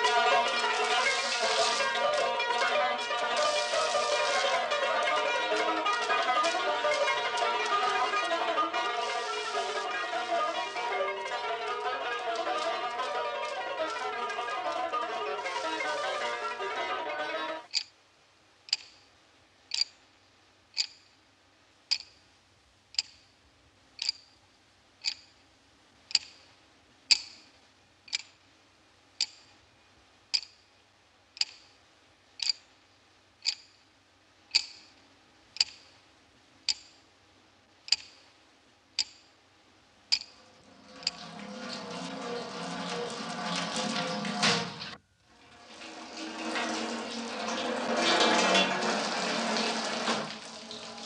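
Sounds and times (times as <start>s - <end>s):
plucked-string music: 0.0s - 17.7s, 40.7s - 45.0s, 45.9s - 51.0s
sharp ringing ticks: 20.8s - 21.1s, 21.9s - 22.2s, 24.0s - 24.4s, 27.1s - 27.5s, 33.4s - 33.8s.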